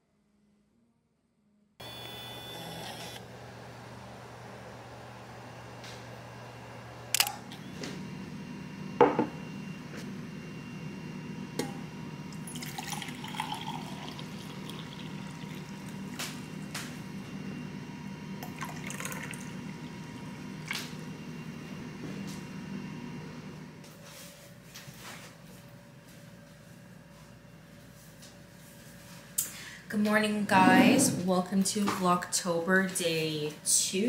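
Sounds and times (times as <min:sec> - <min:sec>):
water pouring into a mug: 0:12.4 - 0:16.2, 0:18.4 - 0:20.8.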